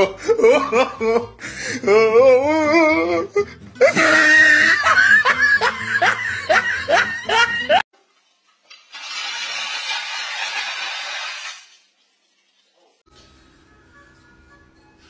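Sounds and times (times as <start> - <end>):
laughter-like rising cries: 0.0 - 7.8
music: 0.0 - 7.8, 13.1 - 15.0.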